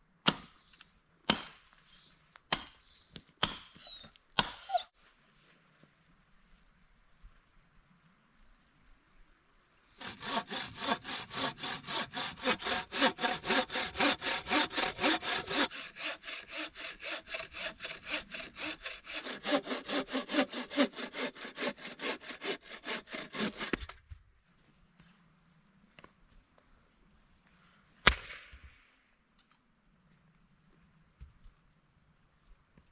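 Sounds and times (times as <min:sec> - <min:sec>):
hand saw cutting wood: 0:10.0 - 0:24.0.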